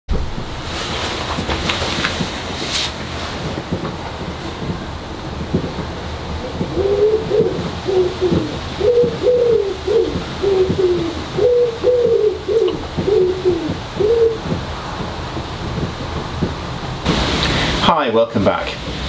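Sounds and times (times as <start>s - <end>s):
heavy rain hissing: 0.1s - 19.0s
pigeon cooing: 6.5s - 14.5s.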